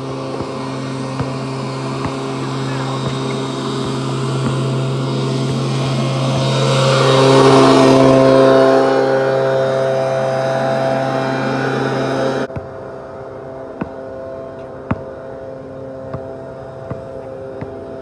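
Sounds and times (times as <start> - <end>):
basketball bouncing on asphalt: 0.0 - 6.6, 12.5 - 12.9, 13.7 - 18.0
motor droning: 0.0 - 18.0.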